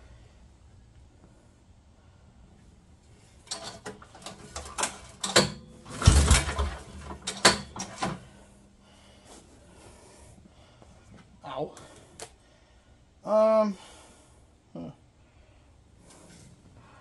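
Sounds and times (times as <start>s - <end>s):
heavy thump: 5.9s - 7.1s.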